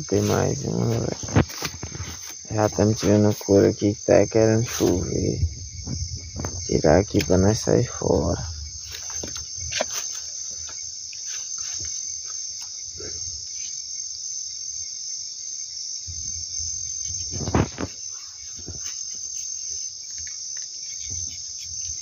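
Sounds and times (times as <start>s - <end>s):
night insects chorus: 0.0s - 22.0s
handling rustles: 0.2s - 3.7s, 8.2s - 12.7s.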